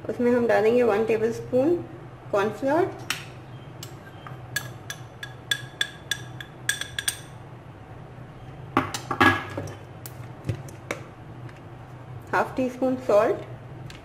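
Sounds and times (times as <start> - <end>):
metal spoon clinking against plate: 3.8 - 7.4.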